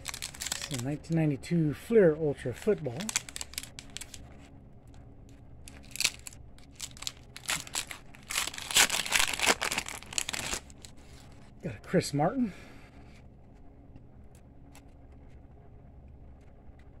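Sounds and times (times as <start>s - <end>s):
foil wrapper tearing and crinkling: 0.0s - 1.0s, 2.7s - 4.2s, 5.7s - 11.0s.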